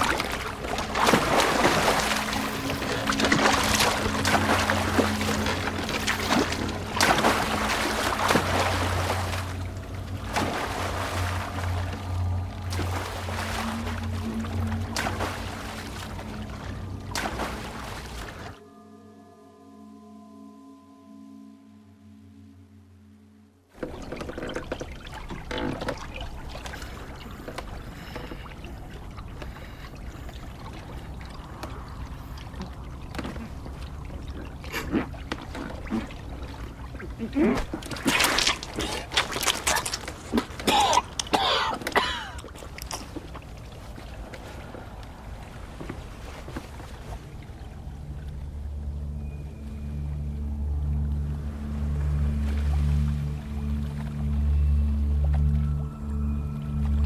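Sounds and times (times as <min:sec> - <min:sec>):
oars splashing in water: 0:00.0 - 0:18.6, 0:23.8 - 0:49.3
low musical drone: 0:00.0 - 0:57.0
faint ringing tone: 0:18.6 - 0:23.7, 0:49.0 - 0:52.0.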